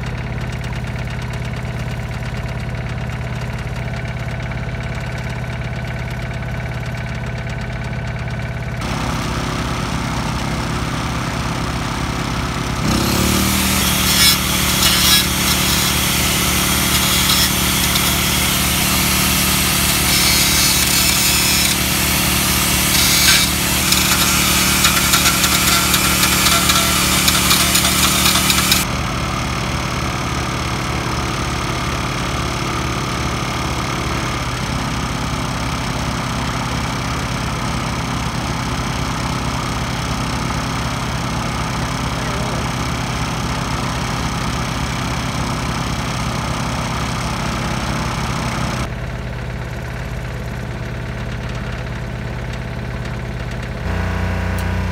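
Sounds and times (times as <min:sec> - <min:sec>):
engine idling: 0:00.0 - 0:54.9
angle grinder grinding metal: 0:12.8 - 0:28.9.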